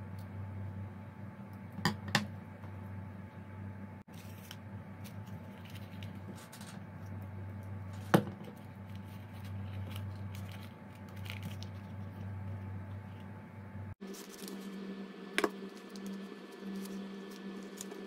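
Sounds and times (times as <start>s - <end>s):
steady low hum: 0.0s - 18.0s
paper rustling: 4.1s - 6.8s, 8.0s - 12.6s, 14.0s - 14.8s.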